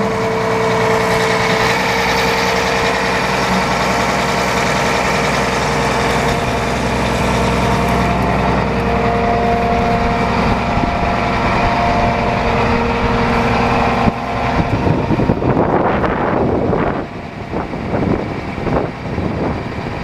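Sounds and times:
tractor diesel engine idling: 0:00.0 - 0:20.0
wind buffeting microphone: 0:00.0 - 0:20.0.

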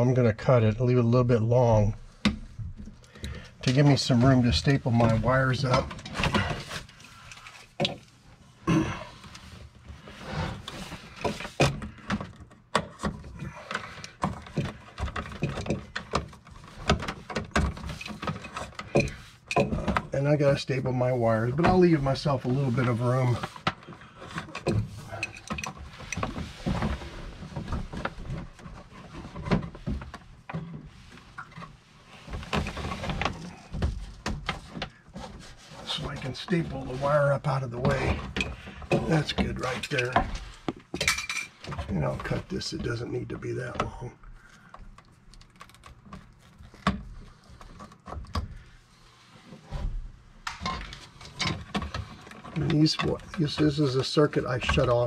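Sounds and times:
cable rustling against wood: 0:01.8 - 0:55.0.

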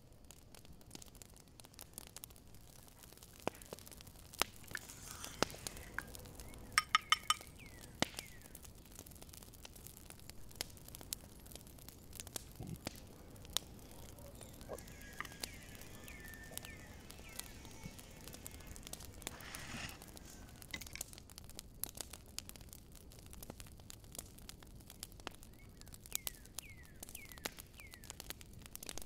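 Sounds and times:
dishes and utensils clicking: 0:06.8 - 0:07.4.

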